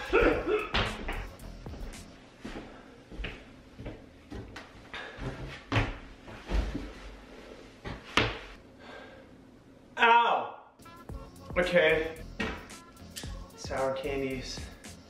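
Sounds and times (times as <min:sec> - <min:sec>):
footsteps: 0:00.2 - 0:07.2.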